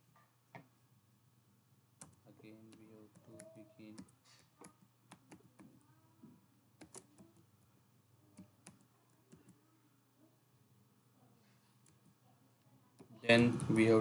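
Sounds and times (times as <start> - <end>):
computer keyboard typing: 2.0 - 5.8, 6.8 - 7.6, 8.3 - 9.6.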